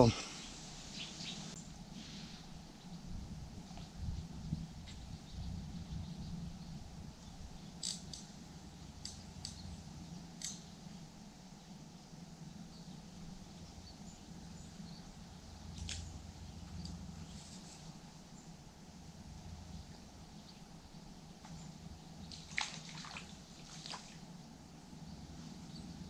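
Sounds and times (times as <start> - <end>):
sharp ticks: 7.8 - 8.3, 9.0 - 9.8, 10.4 - 10.7.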